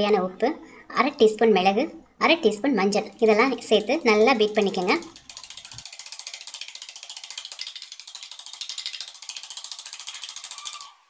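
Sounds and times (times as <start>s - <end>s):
eggs beaten in metal cup: 3.0s - 11.0s.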